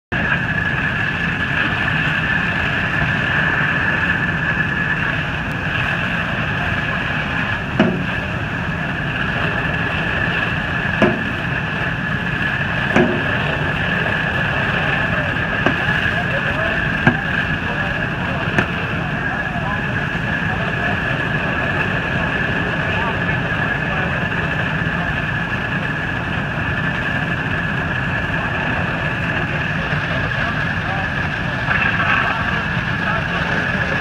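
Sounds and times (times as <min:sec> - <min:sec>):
fire engine rumble: 0:00.1 - 0:34.0
high pump whine: 0:00.1 - 0:34.0
sharp knocks: 0:07.8 - 0:08.1, 0:11.0 - 0:11.3.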